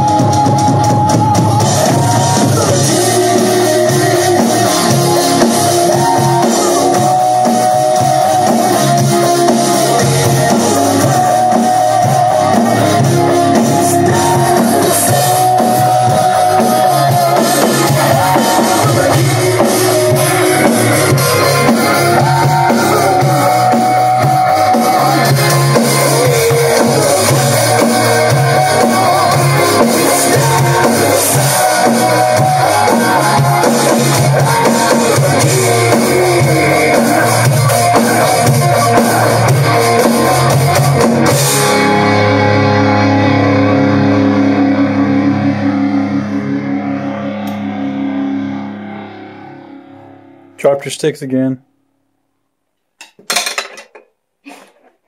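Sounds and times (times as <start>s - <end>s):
electronic drum kit and cymbal: 0.0s - 49.8s
heavy metal song: 0.0s - 50.6s
distorted electric guitar lead note: 1.4s - 50.6s.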